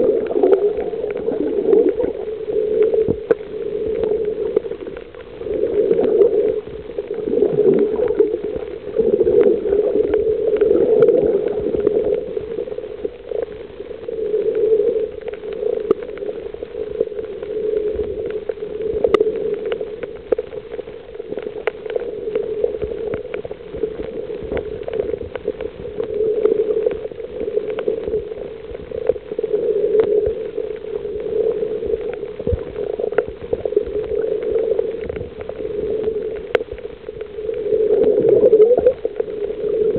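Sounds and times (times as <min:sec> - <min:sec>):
muffled underwater water noise: 0:00.0 - 0:39.9.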